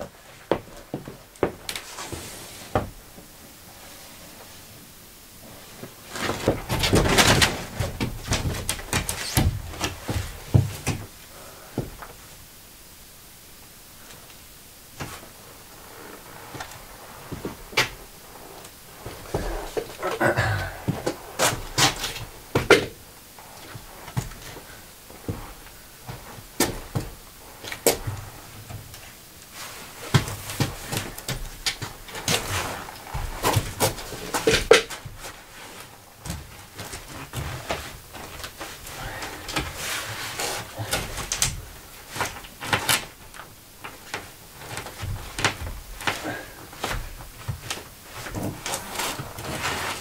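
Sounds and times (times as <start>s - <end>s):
board knocking and scraping: 6.1s - 11.1s, 19.0s - 23.0s.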